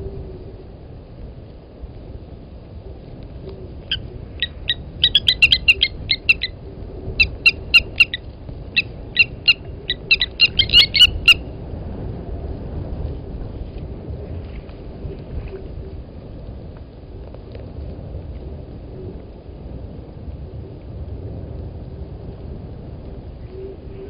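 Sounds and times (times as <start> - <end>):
bird metallic tink calls: 3.9 - 6.5, 8.8 - 11.4.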